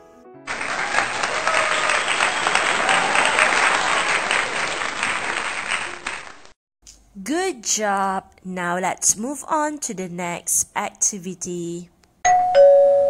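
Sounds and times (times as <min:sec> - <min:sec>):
crowd clapping: 0:00.5 - 0:06.6.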